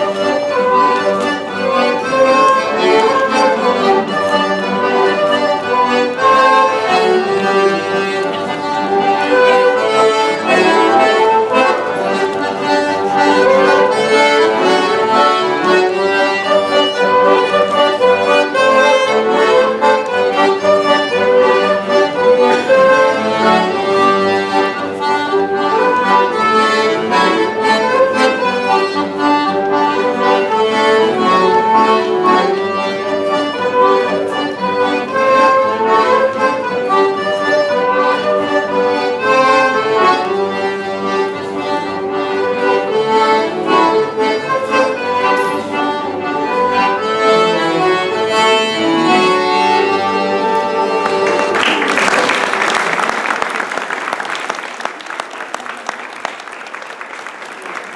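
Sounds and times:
accordion folk dance tune: 0:00.0 - 0:57.9
audience applauding: 0:51.0 - 0:57.9.

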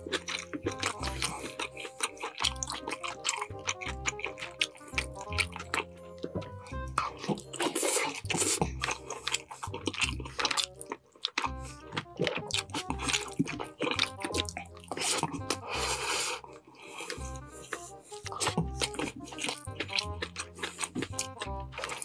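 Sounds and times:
background music: 0:00.0 - 0:22.0
man chewing with wet mouth noises: 0:00.0 - 0:22.0.

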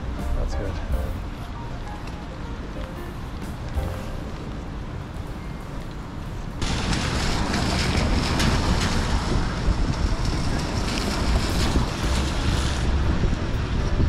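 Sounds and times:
wind buffeting microphone: 0:06.5 - 0:14.0.

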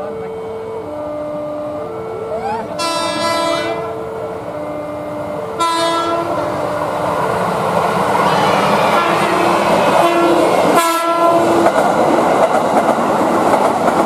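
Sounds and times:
train wheels rumbling on rails: 0:00.0 - 0:14.0
train horn blasts: 0:00.3 - 0:06.5, 0:08.9 - 0:11.5.

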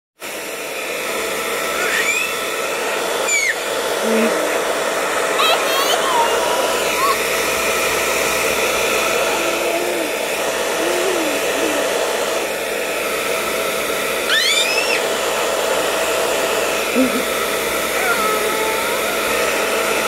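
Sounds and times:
hair dryer running: 0:00.2 - 0:20.0
child's high voice: 0:05.3 - 0:07.3, 0:09.2 - 0:12.1, 0:17.9 - 0:19.3.

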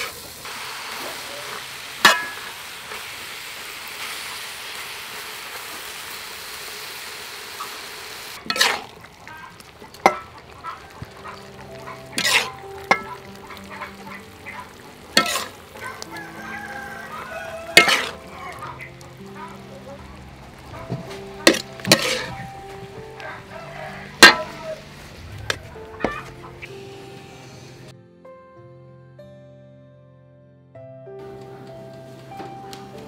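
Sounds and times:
food sizzling in a wok: 0:00.0 - 0:27.9
metal spatula scraping a wok: 0:01.4 - 0:03.0, 0:08.4 - 0:09.0, 0:10.0 - 0:13.2, 0:14.7 - 0:16.7, 0:17.3 - 0:18.3, 0:21.0 - 0:22.6.

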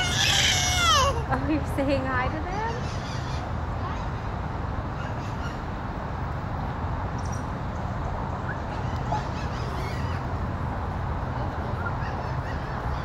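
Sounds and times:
high-pitched animal calls: 0:00.0 - 0:01.2
low outdoor rumble: 0:00.0 - 0:13.0.

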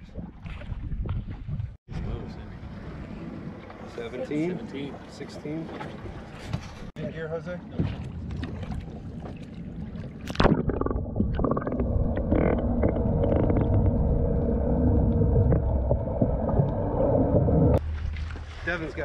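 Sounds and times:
muffled underwater rumble: 0:00.0 - 0:04.6, 0:07.7 - 0:18.5
splash into water: 0:17.8 - 0:19.0.

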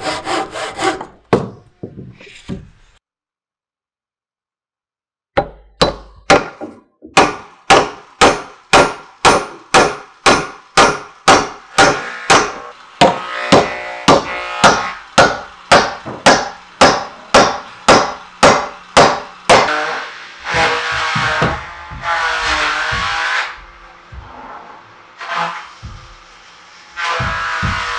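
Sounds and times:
hatchet chopping wood: 0:00.3 - 0:01.6, 0:05.4 - 0:19.8, 0:20.5 - 0:24.3, 0:27.2 - 0:27.9.

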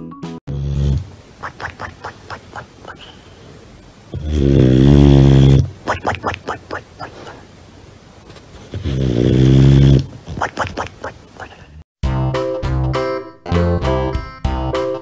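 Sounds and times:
dog snoring: 0:04.1 - 0:05.7, 0:08.7 - 0:10.1.

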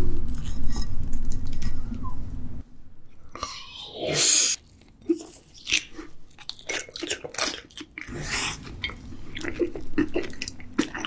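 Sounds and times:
wet chewing mouth sounds: 0:04.6 - 0:11.0.

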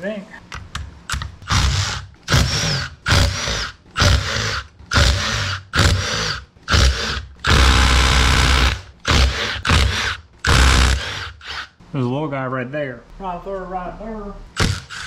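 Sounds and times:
cordless power driver running: 0:01.1 - 0:11.7, 0:14.6 - 0:15.0.

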